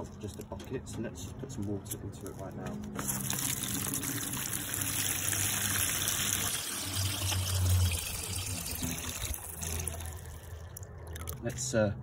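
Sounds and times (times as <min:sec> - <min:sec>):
hose water gushing into bucket: 0:03.0 - 0:10.8.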